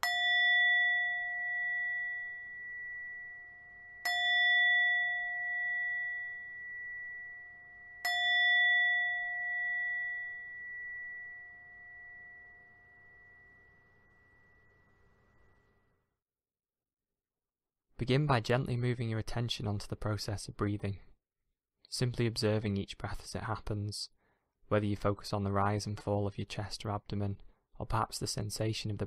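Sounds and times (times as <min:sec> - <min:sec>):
meditation bell ringing: 0:00.0 - 0:15.9.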